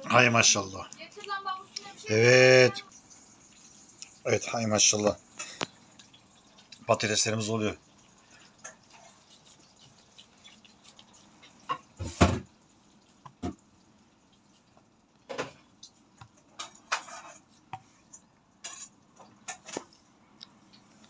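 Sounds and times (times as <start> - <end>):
dishes and utensils clinking: 16.4 - 20.0.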